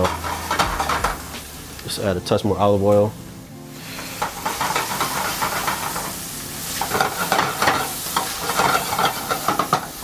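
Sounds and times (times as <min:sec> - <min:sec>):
pan being stirred: 0:00.0 - 0:01.4, 0:04.0 - 0:09.9
vegetables sizzling in oil: 0:00.0 - 0:02.1, 0:03.1 - 0:10.0.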